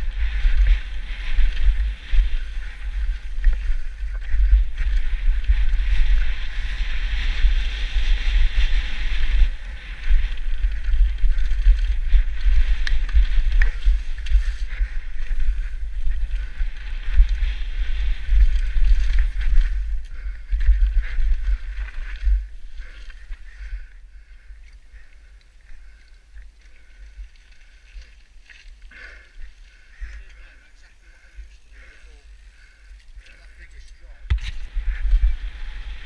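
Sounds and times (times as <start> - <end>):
bike rattling over ground: 0.0 - 23.8
wind buffeting microphone: 0.0 - 25.2, 29.4 - 36.0.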